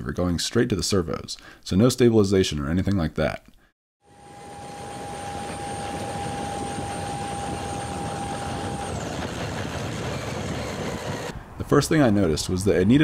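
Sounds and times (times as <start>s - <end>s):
high electric motor whine: 4.0s - 11.3s
steady rushing noise: 4.2s - 11.8s.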